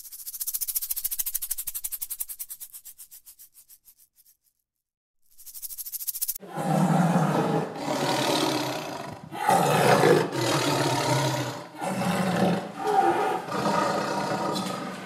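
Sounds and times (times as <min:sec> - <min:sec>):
lion roaring: 0:06.4 - 0:15.0.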